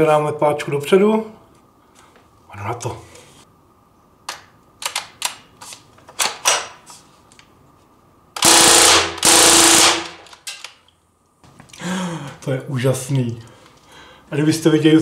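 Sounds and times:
air gun automatic bursts: 8.4s - 10.4s.

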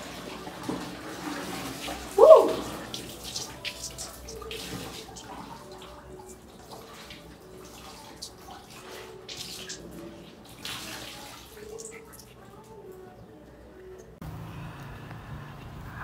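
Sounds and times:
water splashing: 0.0s - 12.8s.

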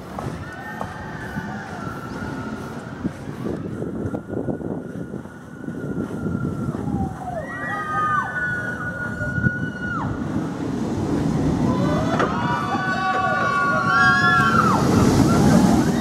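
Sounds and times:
roller coaster running on track: 0.0s - 16.0s
riders screaming: 6.0s - 10.2s, 11.6s - 16.0s.

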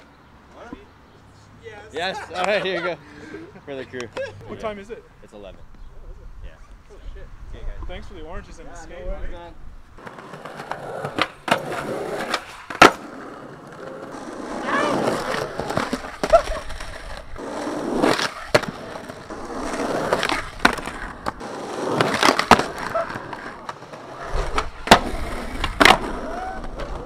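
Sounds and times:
skateboard wheels rolling on concrete: 7.6s - 27.0s
skateboard clacking on pavement: 10.0s - 27.0s.

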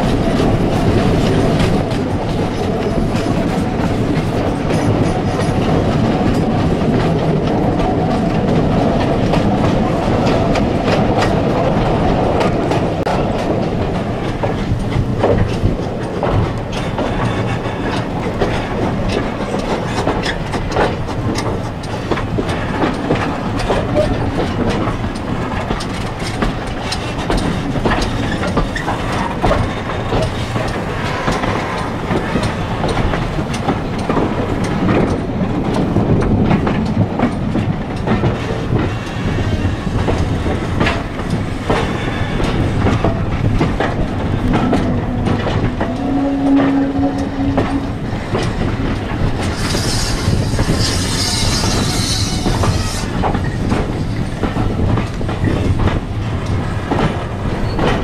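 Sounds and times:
train wheels clattering over rails: 0.0s - 58.0s
steady tone: 43.8s - 48.4s.

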